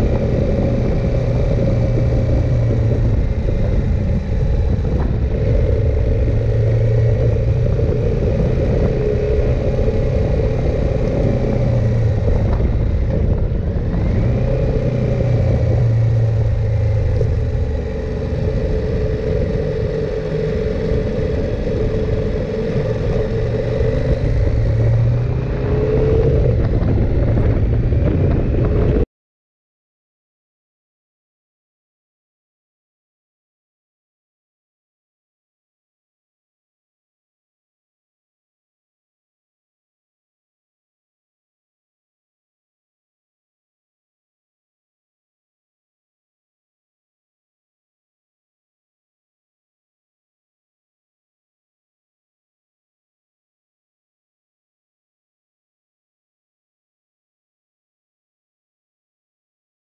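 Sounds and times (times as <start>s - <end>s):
motorcycle engine running: 0.0s - 29.0s
low wind rumble: 0.0s - 29.1s.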